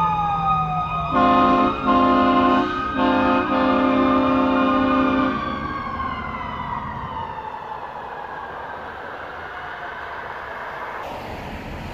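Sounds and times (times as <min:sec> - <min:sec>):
engine and road rumble: 0:00.0 - 0:11.9
fire engine siren winding down: 0:00.0 - 0:11.9
air horn chord: 0:01.1 - 0:05.4.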